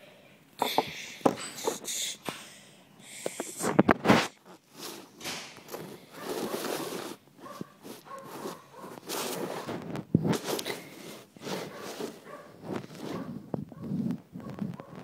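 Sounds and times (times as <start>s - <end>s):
plastic toys rustling and clattering: 0.6s - 2.4s, 3.1s - 15.0s.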